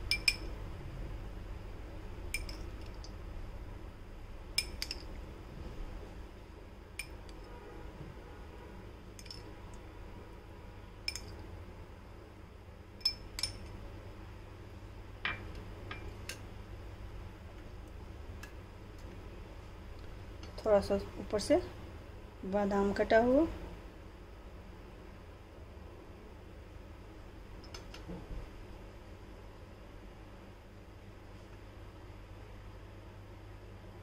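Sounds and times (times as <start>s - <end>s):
metal spoon clinking on dishes: 0.0s - 0.5s, 2.3s - 3.2s, 4.6s - 5.2s, 7.0s - 7.5s, 9.2s - 9.5s, 11.0s - 11.4s, 13.0s - 13.8s.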